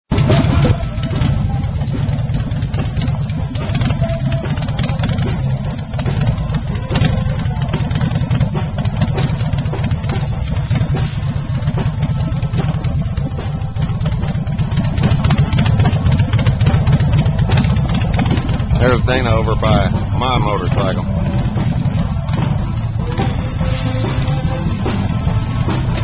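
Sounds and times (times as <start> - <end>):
motorcycle engine idling: 0.1 - 26.0.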